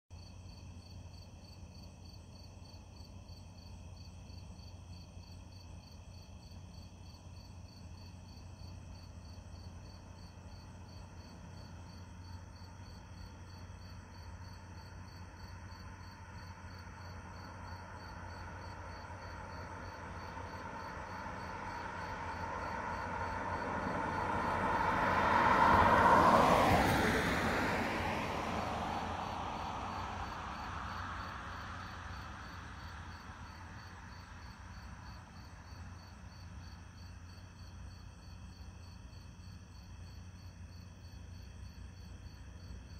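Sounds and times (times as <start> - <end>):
crickets chirping: 0.2 - 42.9
car passing by: 8.6 - 37.9.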